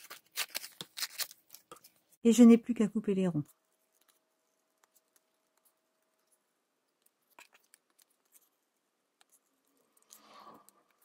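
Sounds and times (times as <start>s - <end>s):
scissors snipping paper: 0.0s - 1.9s.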